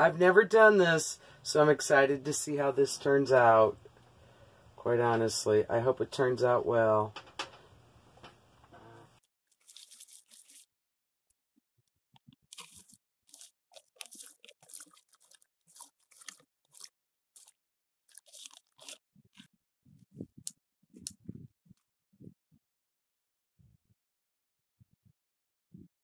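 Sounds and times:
wood chips rustling and crunching: 9.5s - 10.7s, 12.5s - 19.0s.

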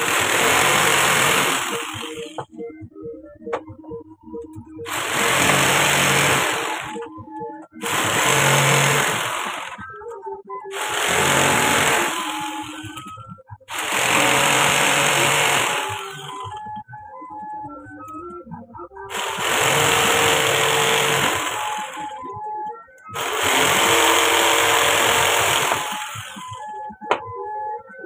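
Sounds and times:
power tool cutting wood: 0.0s - 2.6s, 4.9s - 7.1s, 7.8s - 9.9s, 10.7s - 13.1s, 13.7s - 16.6s, 19.1s - 22.3s, 23.1s - 26.7s
background music: 0.0s - 28.0s.

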